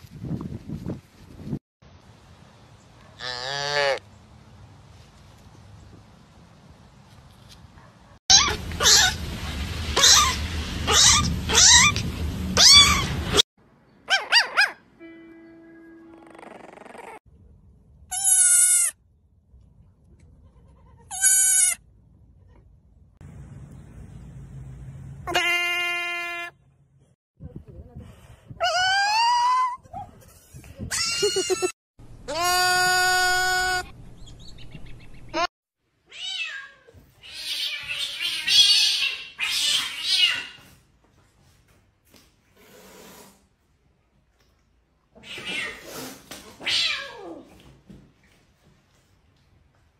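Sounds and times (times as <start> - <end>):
goat kid bleating: 18.1 - 18.9, 20.4 - 21.8, 25.3 - 26.5, 32.3 - 33.8
cat hissing and yowling: 36.1 - 40.7, 45.2 - 47.5.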